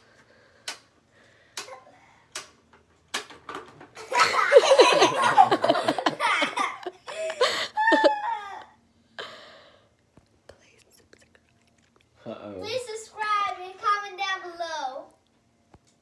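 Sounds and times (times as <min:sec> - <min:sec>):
children laughing and shrieking: 0:07.6 - 0:08.8.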